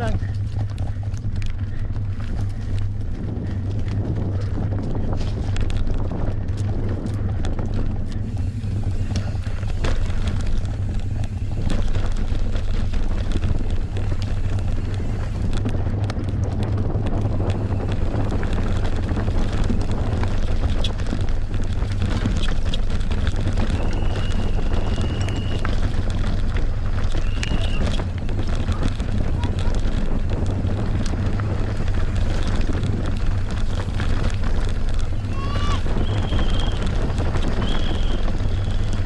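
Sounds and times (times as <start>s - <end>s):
mountain bike rattling: 0.0s - 39.0s
wind buffeting microphone: 0.0s - 39.0s.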